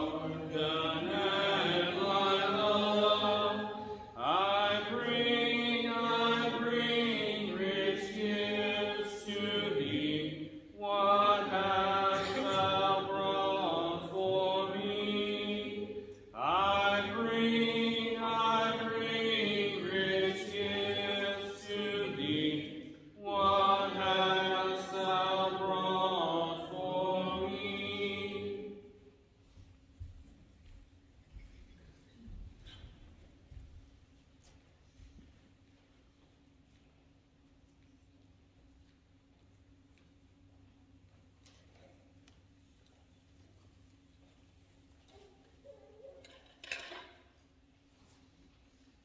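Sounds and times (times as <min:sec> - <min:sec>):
congregation singing a hymn: 0:00.0 - 0:30.6.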